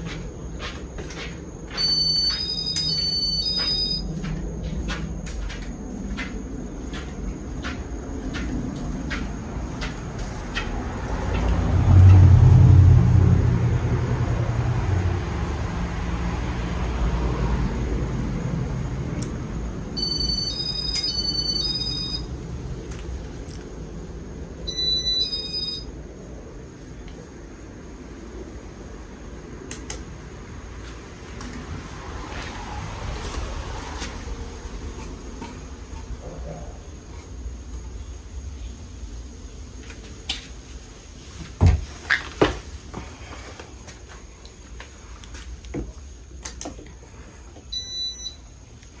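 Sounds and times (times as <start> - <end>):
ceiling fan whirring: 0.0 - 49.0
short high beep: 1.7 - 4.0
electronic two-tone beeping: 1.7 - 4.2, 20.0 - 22.3, 24.7 - 25.9, 47.8 - 48.4.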